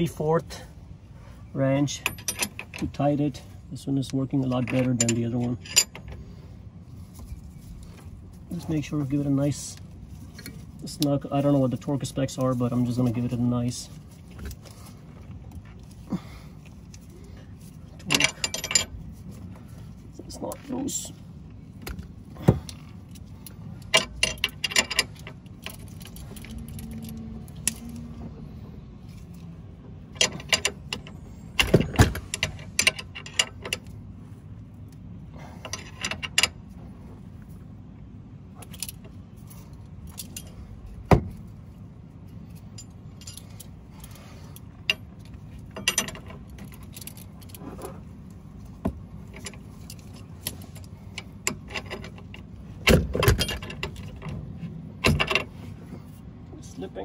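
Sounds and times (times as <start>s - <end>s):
wrench clinking on metal: 1.8s - 3.0s, 4.5s - 6.1s, 17.9s - 19.0s, 22.6s - 28.1s, 42.3s - 48.0s.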